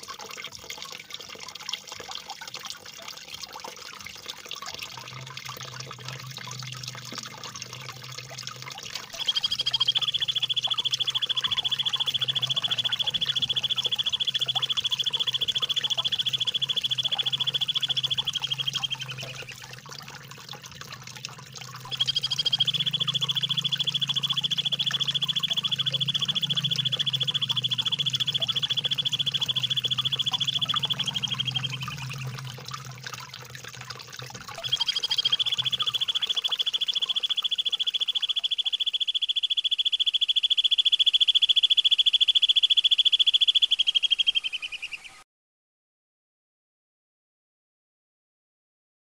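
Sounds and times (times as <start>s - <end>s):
trickling water: 0.0s - 45.2s
low hum: 4.9s - 38.6s
rapid rolling bird trills: 7.5s - 19.8s, 20.4s - 45.2s.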